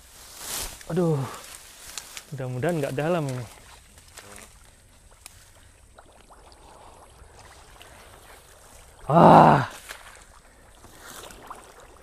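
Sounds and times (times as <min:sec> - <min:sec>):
water sloshing: 0:01.6 - 0:12.0
man crying out: 0:09.1 - 0:09.7.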